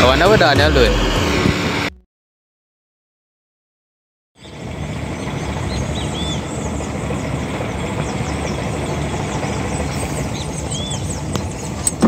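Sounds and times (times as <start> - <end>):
birds chirping: 4.4 - 12.0
outboard motor rumbling: 4.4 - 12.0.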